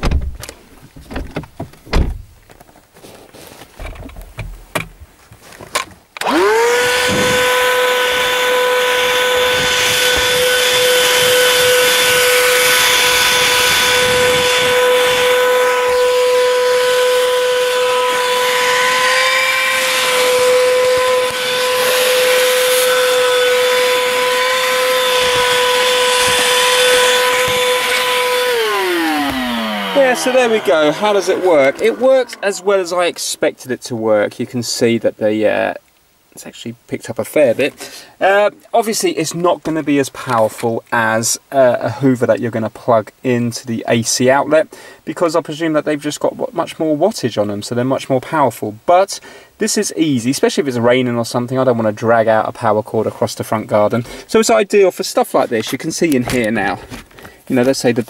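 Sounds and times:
handheld vacuum cleaner whining: 6.2s - 33.4s.

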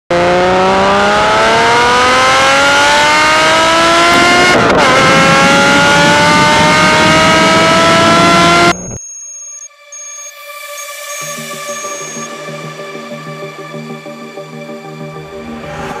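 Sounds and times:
car engine revving hard: 0.1s - 9.0s
gear upshift: 3.2s - 9.0s.

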